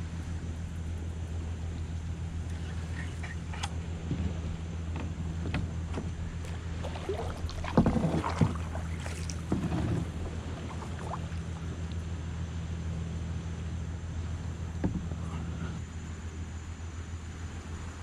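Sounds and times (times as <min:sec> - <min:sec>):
steady low hum: 0:00.0 - 0:18.0
paddle knocking against hull: 0:04.1 - 0:11.9
paddle splashing in water: 0:04.1 - 0:12.0.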